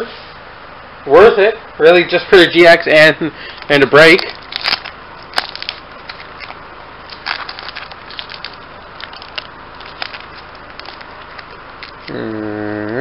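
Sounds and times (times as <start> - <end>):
foil wrapper crinkling: 3.5 - 12.2.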